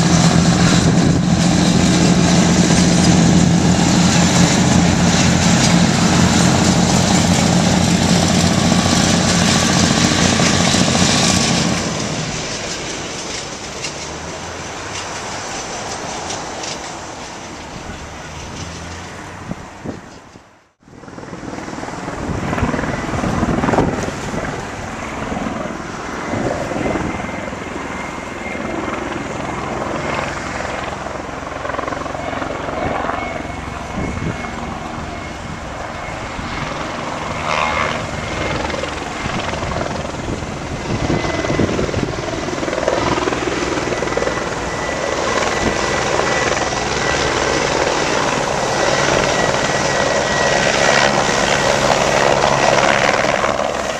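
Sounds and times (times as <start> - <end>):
helicopter rotor and engine: 0.0 - 53.9
thin steady whine: 27.0 - 53.9.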